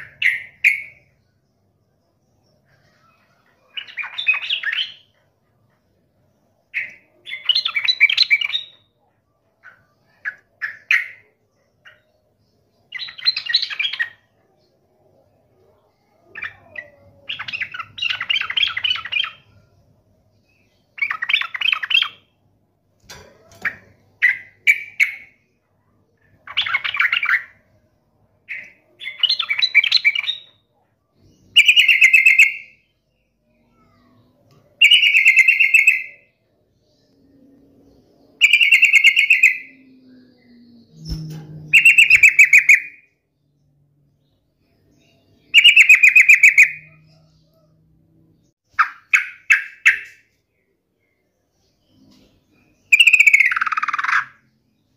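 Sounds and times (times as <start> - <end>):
bird singing chattering phrases: 2.5 - 19.8, 23.0 - 43.1, 44.4 - 47.8, 48.4 - 54.9.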